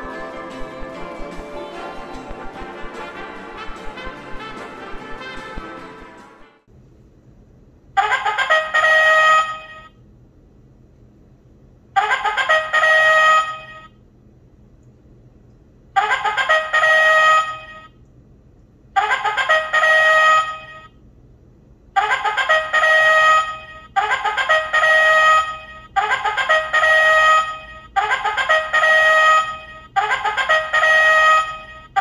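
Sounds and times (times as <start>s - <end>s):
electronic bugle alarm: 8.0s - 10.0s, 12.0s - 14.0s, 16.0s - 18.0s, 19.0s - 21.0s, 22.0s - 32.0s.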